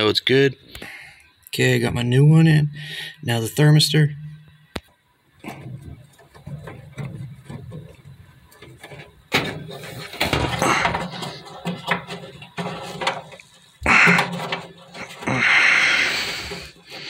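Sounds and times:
hand rustling and scraping wiring: 5.3 - 17.0.

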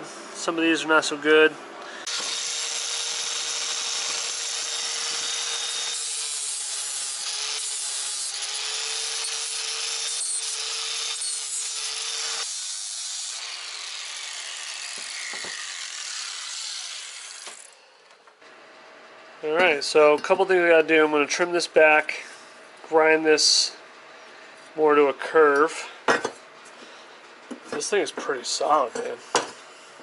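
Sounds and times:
angle grinder grinding metal: 2.0 - 17.9.

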